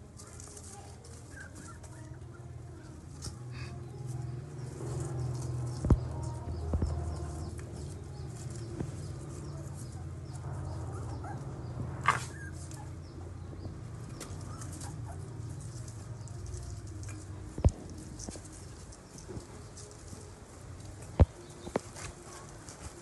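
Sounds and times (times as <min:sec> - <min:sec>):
low background hum: 0:00.0 - 0:23.0
puppies rustling and scuffing: 0:00.0 - 0:23.0.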